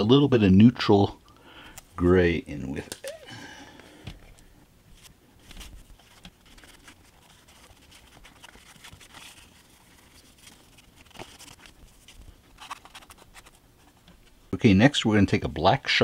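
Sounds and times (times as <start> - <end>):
small handling noises: 2.7 - 14.6.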